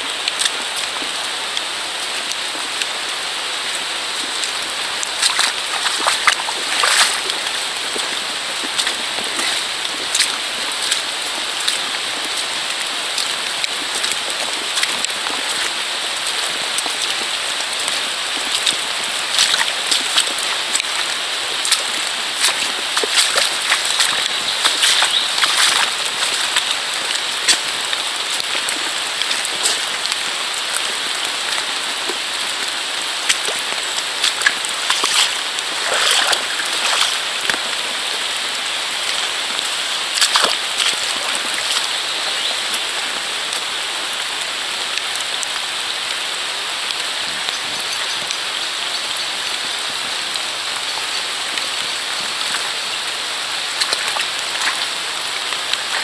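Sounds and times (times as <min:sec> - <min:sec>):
steady rain falling: 0:00.0 - 0:56.0.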